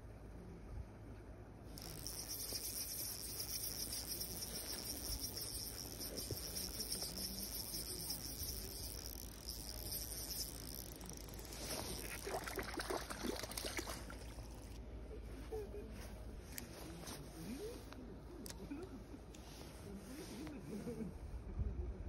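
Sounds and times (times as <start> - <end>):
fish splashing: 1.8 - 14.8
spinning reel chirring: 1.8 - 14.8.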